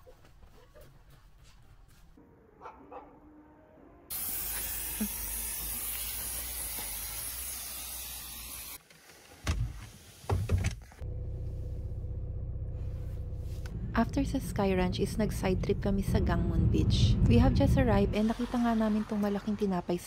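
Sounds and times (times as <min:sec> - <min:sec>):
aerosol spray hissing: 0:04.1 - 0:08.8
car engine humming: 0:10.8 - 0:19.1.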